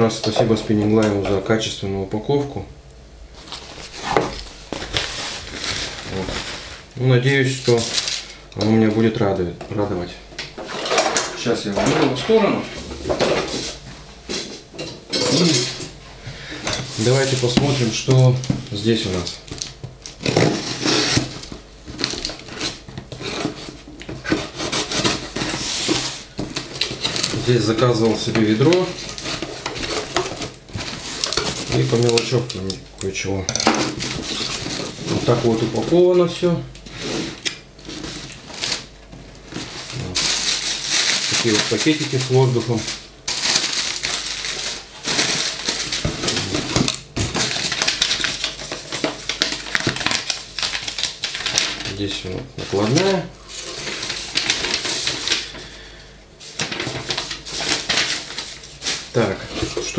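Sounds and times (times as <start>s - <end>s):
plastic air cushions crinkling: 3.4s - 8.2s, 39.6s - 53.3s
cardboard crackling: 3.4s - 8.3s, 16.9s - 32.7s, 37.1s - 55.6s, 56.5s - 59.9s
knife scraping packing tape: 20.2s - 27.4s.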